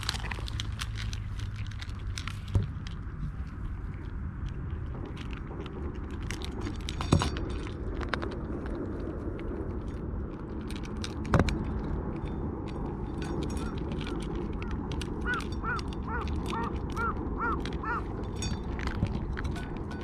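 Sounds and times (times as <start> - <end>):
cats crunching and chewing: 0.0 - 20.0
teeth clicking against tin dish: 12.7 - 20.0
animal giving short calls: 15.2 - 18.1.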